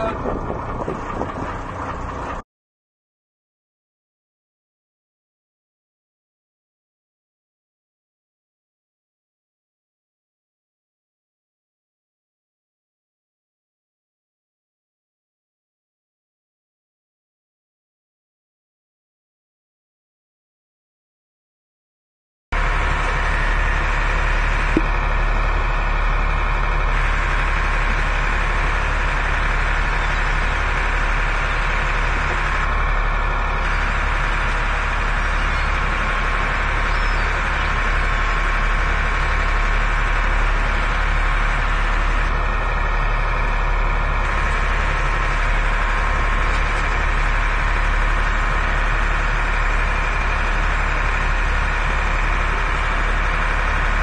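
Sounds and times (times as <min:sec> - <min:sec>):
boat engine running: 0:00.0 - 0:02.4, 0:22.6 - 0:54.0.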